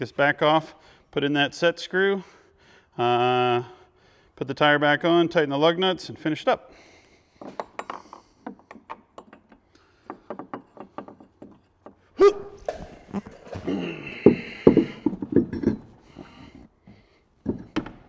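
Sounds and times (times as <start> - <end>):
knocking: 7.4 - 13.2, 14.1 - 16.3
rubber scraping: 12.5 - 16.2.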